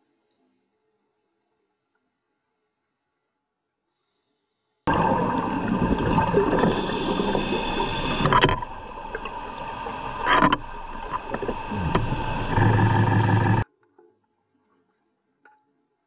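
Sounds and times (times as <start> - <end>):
scuba bubbles gurgling underwater: 4.9 - 13.6
steady hum: 4.9 - 13.6.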